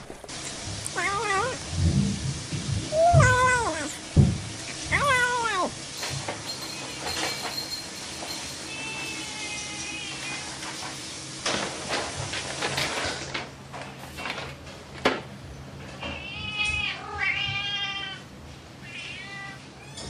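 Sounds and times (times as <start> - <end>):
cat meowing: 0.9 - 1.6, 2.9 - 4.0, 4.9 - 5.8, 8.7 - 10.6, 16.1 - 18.2, 18.8 - 20.0.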